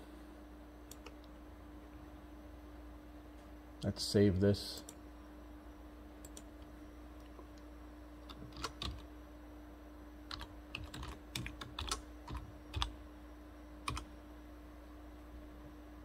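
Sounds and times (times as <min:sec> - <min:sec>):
computer keyboard typing: 0:08.2 - 0:09.1, 0:10.3 - 0:12.9, 0:13.8 - 0:14.1.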